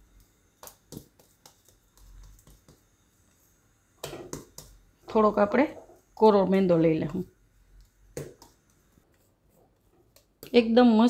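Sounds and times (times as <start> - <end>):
hands slapping dough: 0.1 - 3.1, 4.0 - 4.8, 7.8 - 9.3.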